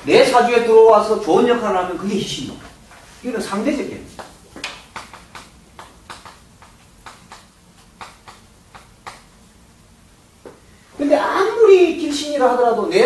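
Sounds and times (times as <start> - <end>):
chalk tapping and scratching on board: 4.2 - 9.3.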